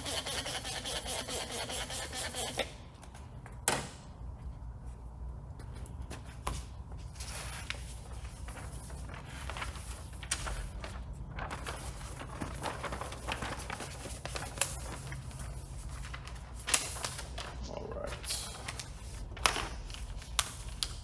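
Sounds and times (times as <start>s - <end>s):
plastic film crinkling: 7.6s - 21.0s.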